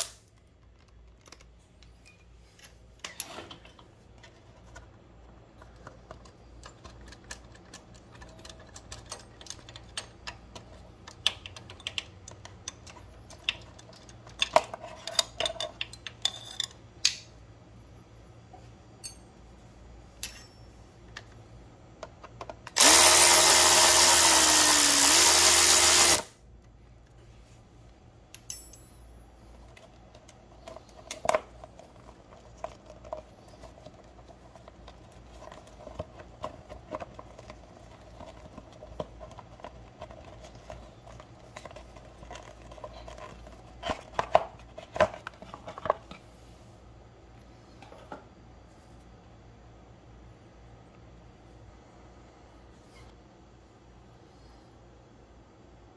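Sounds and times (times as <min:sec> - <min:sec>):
power drill running: 0:22.8 - 0:26.3.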